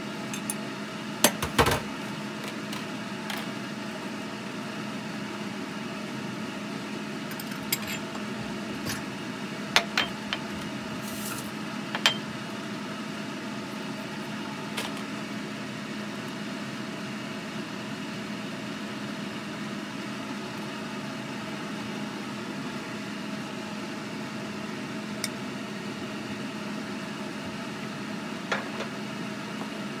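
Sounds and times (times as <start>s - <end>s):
kitchen fan humming: 0.0s - 30.0s
dishes clinking: 12.0s - 12.3s.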